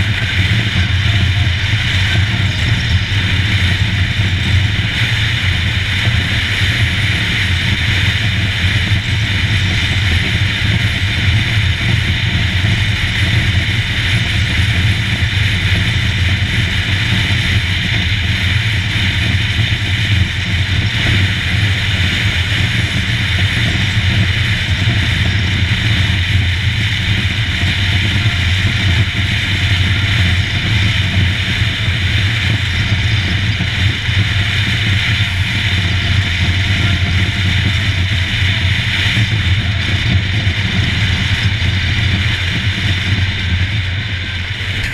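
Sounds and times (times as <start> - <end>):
motorcycle engine running: 0.0 - 44.9
wind and road noise: 0.0 - 44.9.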